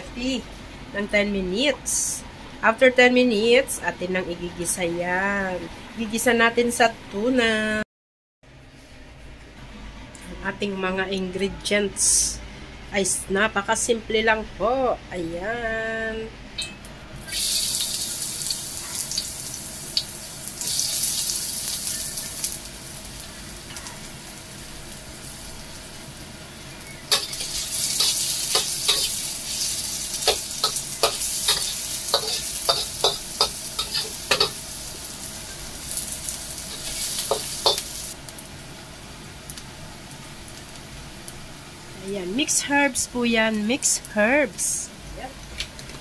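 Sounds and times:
garlic and onion sizzling in oil: 17.2s - 45.2s.

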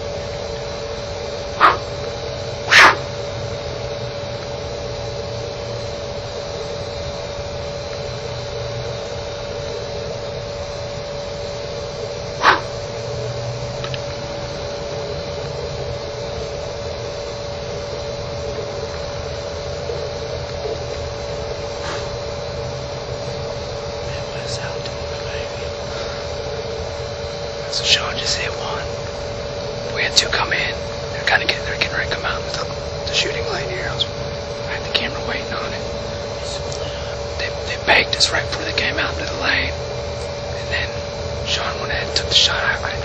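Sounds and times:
thin steady tone: 0.0s - 3.3s
hiss and low hum: 0.0s - 43.0s.

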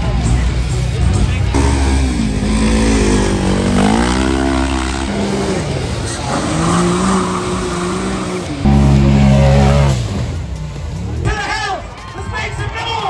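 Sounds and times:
utility vehicle engine revving: 1.5s - 11.0s.

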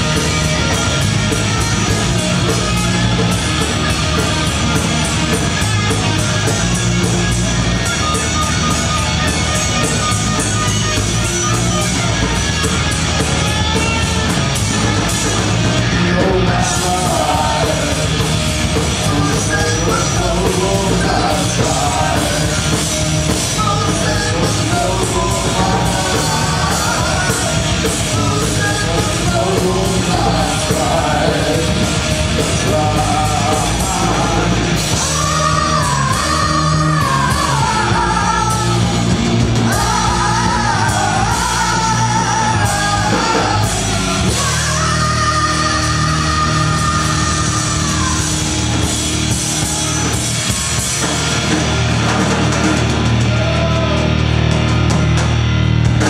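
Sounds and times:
distorted electric guitar: 0.0s - 56.0s
drums: 0.0s - 56.0s
punk rock band playing live: 0.0s - 56.0s
shouted sung lead vocal: 15.5s - 50.9s, 53.0s - 54.4s.

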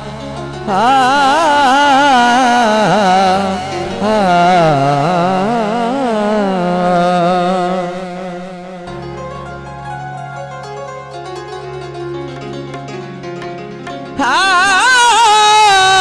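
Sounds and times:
man singing wordless folk line: 0.0s - 8.9s, 14.2s - 16.0s.

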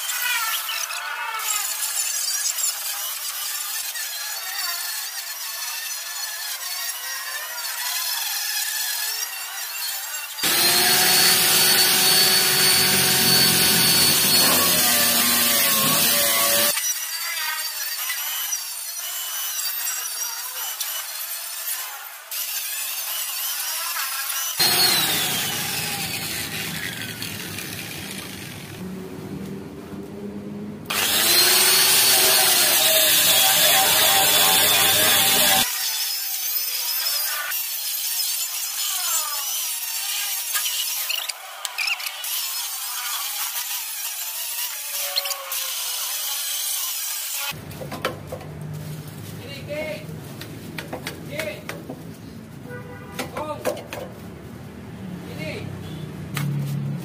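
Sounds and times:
grinder grinding rusty steel: 0.0s - 28.8s, 30.9s - 47.6s
angle grinder wire brush whine: 10.4s - 17.4s, 24.6s - 28.8s, 30.9s - 35.7s.

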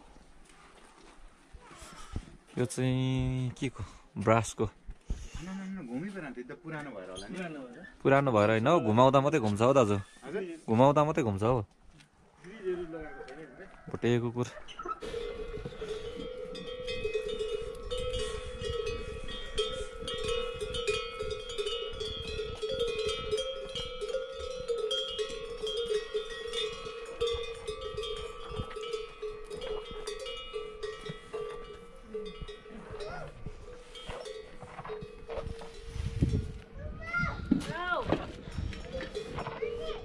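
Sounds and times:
prayer wheel bell ringing: 15.0s - 36.6s.

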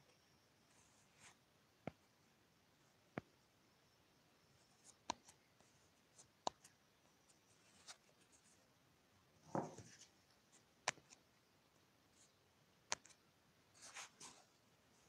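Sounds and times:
faint sharp clicks and taps: 1.2s - 2.1s, 4.6s - 8.5s, 9.5s - 11.3s, 12.9s - 13.2s.

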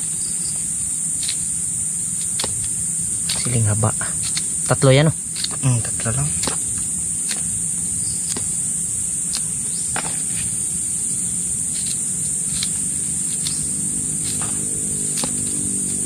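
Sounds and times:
insects droning: 0.0s - 16.0s
knife slicing chili: 14.2s - 15.8s.

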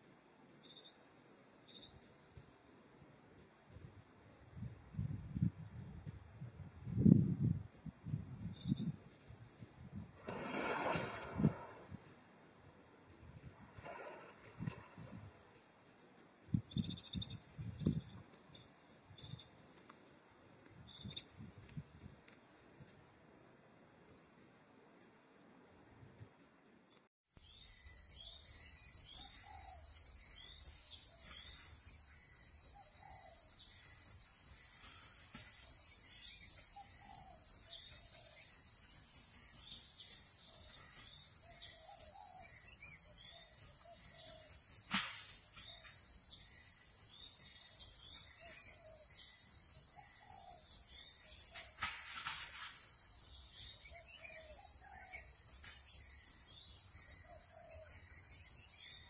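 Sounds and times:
pulsing chorus of jungle insects: 27.4s - 59.0s.

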